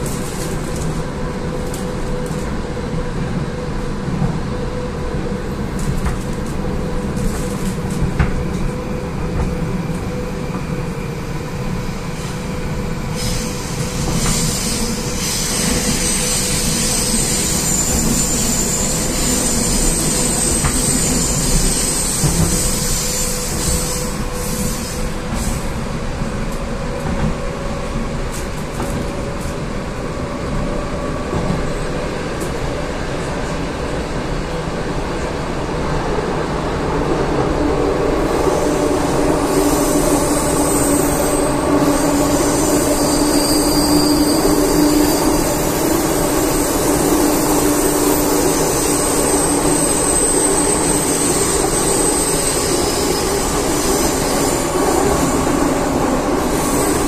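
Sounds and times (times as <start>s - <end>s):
train rumble in tunnel: 0.0s - 57.0s.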